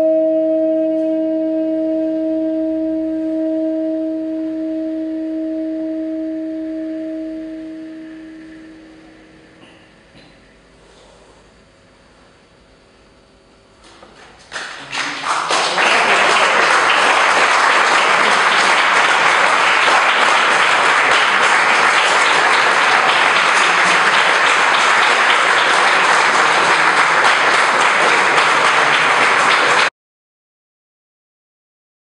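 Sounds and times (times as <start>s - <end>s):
audience applauding: 14.1s - 29.9s.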